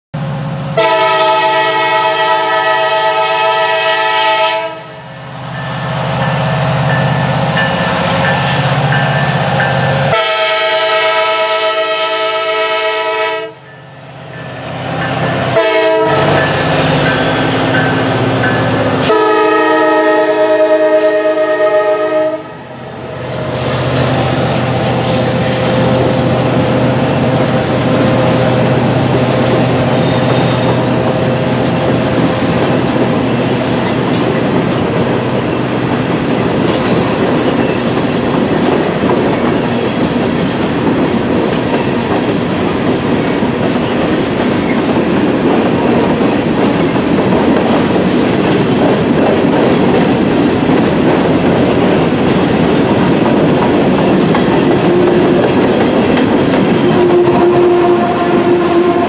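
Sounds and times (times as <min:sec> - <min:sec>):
locomotive chime horn: 0:00.8 - 0:14.4, 0:15.0 - 0:22.7, 0:56.8 - 0:59.0
wheels clattering on rail: 0:25.2 - 0:59.0.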